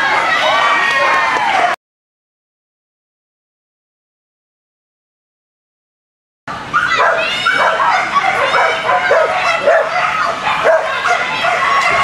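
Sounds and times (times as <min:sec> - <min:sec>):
dogs barking and yipping: 0:06.7 - 0:12.0.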